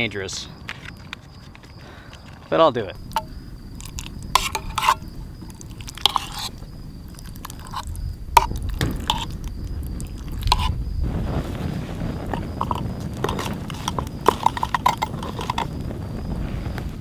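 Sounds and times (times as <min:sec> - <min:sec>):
campfire crackling: 0:00.0 - 0:17.0
steady low rumble: 0:02.9 - 0:17.0
spoon scraping metal cup: 0:03.1 - 0:10.8, 0:12.3 - 0:15.7.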